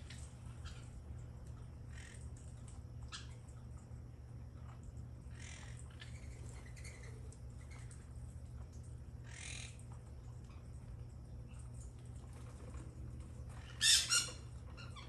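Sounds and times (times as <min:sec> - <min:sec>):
low steady rumble: 0:00.0 - 0:15.0
parakeet harsh squawks: 0:09.2 - 0:09.7, 0:13.6 - 0:15.0.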